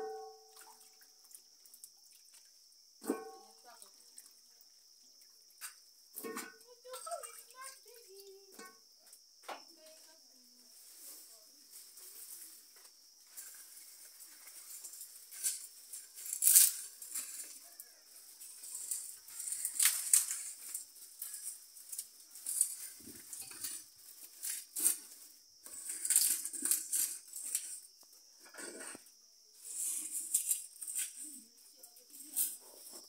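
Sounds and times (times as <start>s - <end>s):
leaves rustling and crackling: 10.3s - 27.8s.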